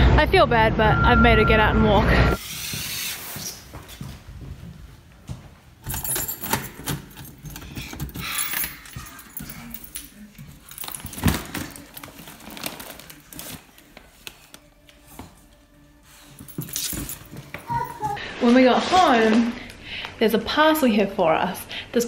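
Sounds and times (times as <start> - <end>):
door unlocked and opened: 5.8 - 8.8
keys jangling: 5.8 - 11.5, 16.4 - 17.4.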